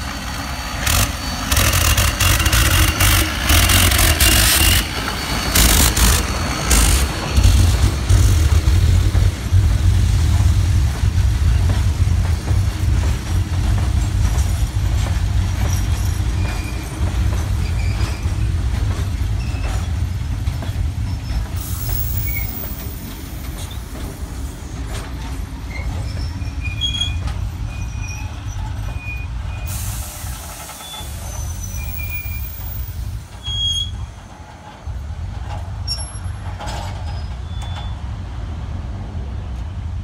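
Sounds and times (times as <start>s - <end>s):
high wheel squeals: 0.0s - 8.2s, 15.6s - 18.5s, 21.1s - 24.6s, 25.6s - 34.2s, 35.8s - 38.1s
train wheels rumbling on track: 0.0s - 40.0s
clicks from rail joints: 34.6s - 38.0s.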